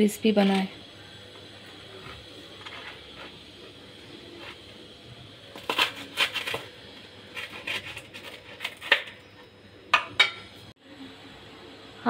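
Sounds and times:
knife crunching through toast: 5.6s - 6.7s, 7.3s - 9.0s.

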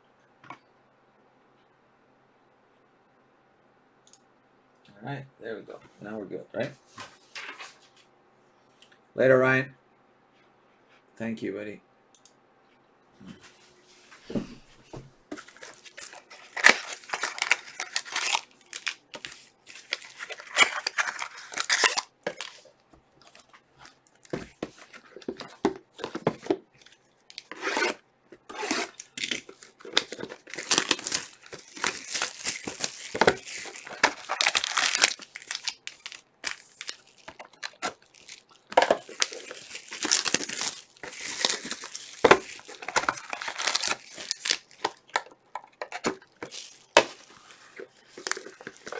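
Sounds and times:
plastic wrapping tearing and crinkling: 15.4s - 48.9s.

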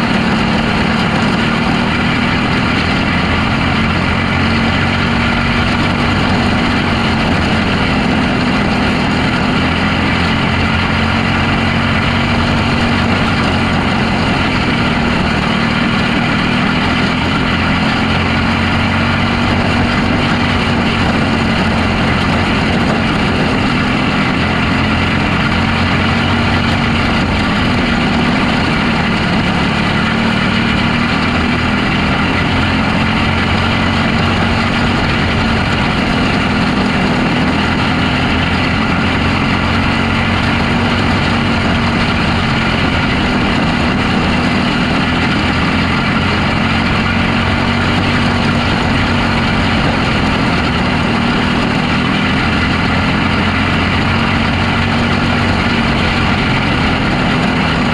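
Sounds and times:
race car engine running hard: 0.0s - 57.9s
wind noise: 0.0s - 57.9s.

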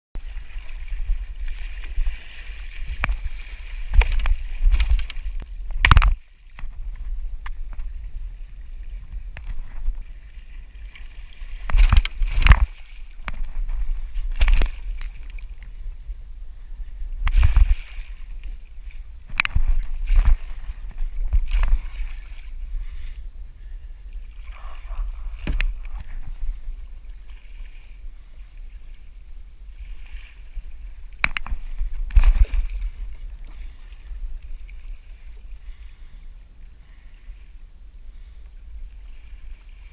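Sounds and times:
sharp knocks and splashes: 0.2s - 7.9s, 10.8s - 15.6s, 17.2s - 18.5s, 19.3s - 22.6s, 24.5s - 26.4s, 31.2s - 33.8s
steady low rumble: 0.2s - 39.9s
water splashing around kayak: 0.2s - 39.9s.

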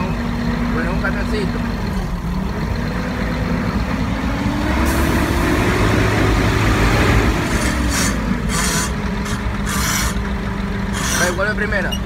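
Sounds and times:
truck diesel engine revving: 0.0s - 12.0s.

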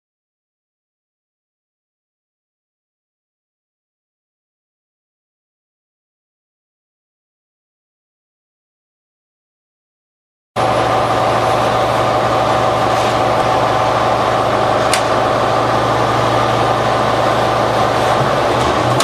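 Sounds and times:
bus diesel engine idling: 10.6s - 19.0s.

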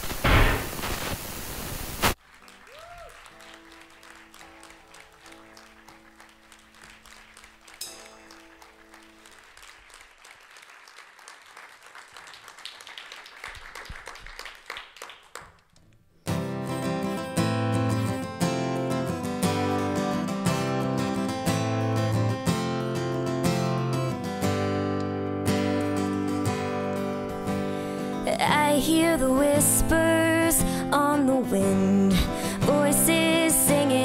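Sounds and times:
static hiss: 0.0s - 2.2s
audience applause: 2.1s - 15.6s
acoustic guitar strumming: 16.2s - 34.0s.

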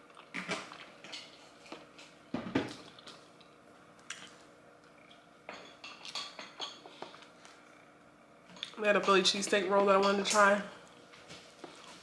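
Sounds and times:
dishes and cutlery clinking: 5.5s - 6.9s.

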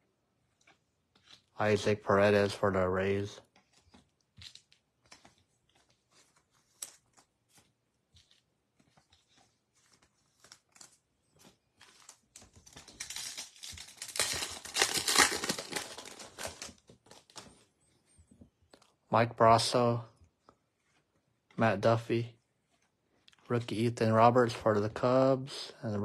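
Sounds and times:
foil wrapper tearing and crinkling: 9.7s - 17.7s.

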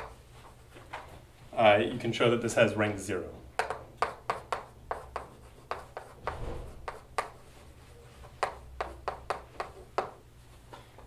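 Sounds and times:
chalk tapping and scratching on blackboard: 0.0s - 1.2s, 3.6s - 10.3s.

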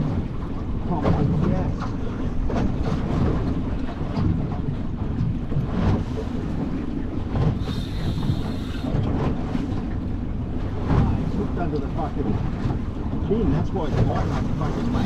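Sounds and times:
sea noise: 0.0s - 15.0s
wind rumbling on microphone: 0.0s - 15.0s.

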